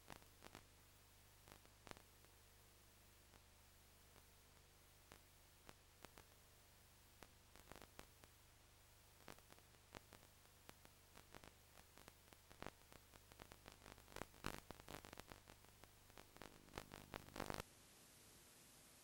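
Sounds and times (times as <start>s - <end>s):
clicks and crackles: 0.0s - 0.7s, 1.4s - 2.4s, 3.2s - 6.4s, 7.1s - 8.4s, 9.1s - 17.6s
faint hum: 0.0s - 19.0s
tape hiss: 0.0s - 19.0s.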